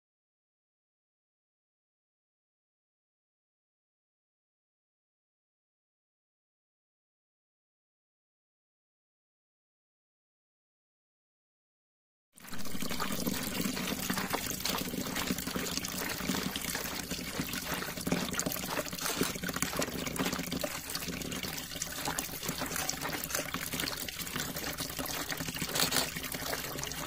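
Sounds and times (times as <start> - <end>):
juice trickling: 12.4 - 27.0.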